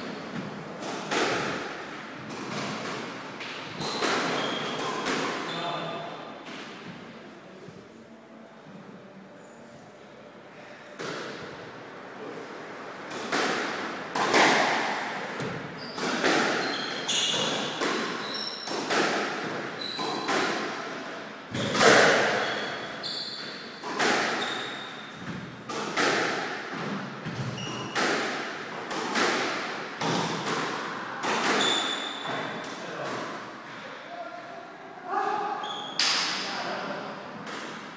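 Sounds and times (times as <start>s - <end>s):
squash ball hitting rackets and walls: 0.0s - 5.5s, 11.0s - 11.6s, 13.1s - 33.8s, 37.4s - 37.9s
shoe squeaks on wooden floor: 3.7s - 4.8s, 15.8s - 18.7s, 19.8s - 20.3s, 21.5s - 25.2s, 27.4s - 28.0s, 31.6s - 32.5s, 35.6s - 36.0s.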